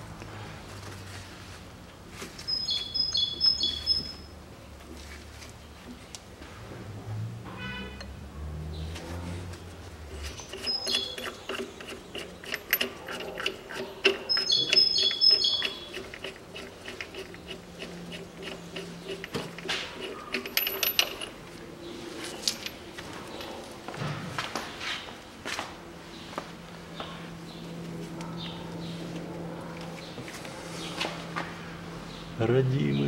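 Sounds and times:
metal tools clicking: 10.3s - 21.4s, 22.4s - 23.6s
metal tools clinking: 10.3s - 21.5s, 22.2s - 23.6s.

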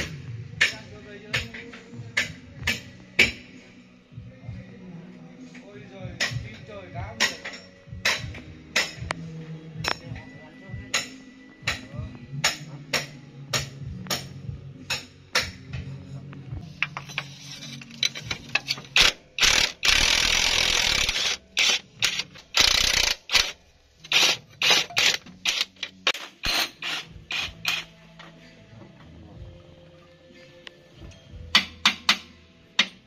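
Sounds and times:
ratchet wrench clicking: 18.0s - 27.9s.

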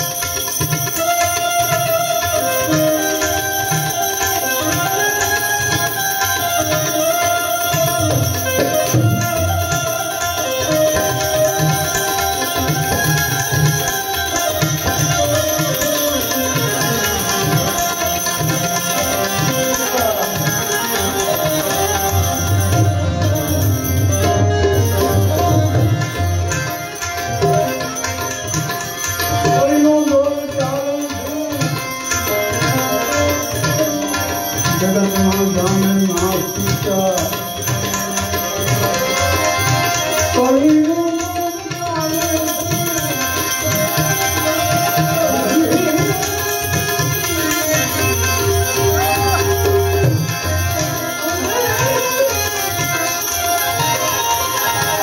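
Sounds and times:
harmonium chords: 0.0s - 55.0s
tabla strokes: 0.0s - 55.0s.

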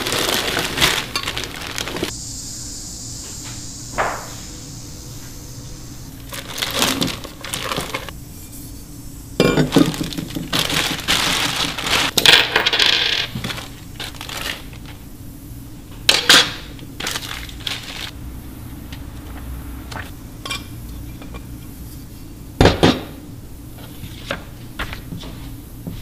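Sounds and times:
plastic bags crinkling: 0.0s - 2.1s, 6.2s - 8.1s, 9.4s - 15.0s, 16.3s - 18.2s.

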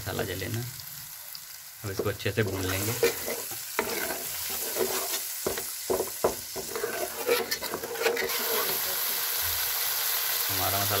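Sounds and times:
spices sizzling in hot oil: 0.0s - 11.0s
metal spatula scraping pan: 2.5s - 9.0s.

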